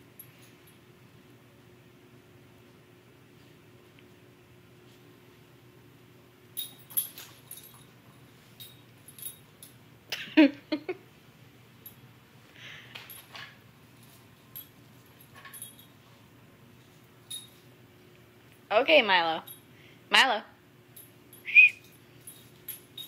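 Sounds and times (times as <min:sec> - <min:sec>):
light metallic jingles and clicks: 0:06.5 - 0:09.9, 0:13.0 - 0:16.2, 0:17.0 - 0:18.7, 0:19.4 - 0:19.7, 0:20.9 - 0:23.0.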